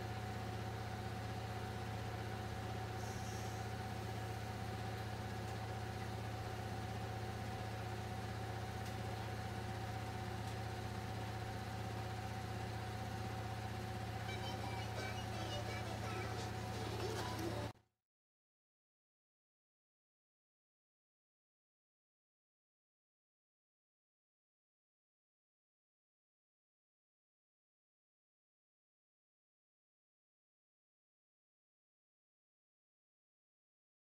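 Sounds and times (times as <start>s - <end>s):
small electric motor humming: 2.7s - 5.7s.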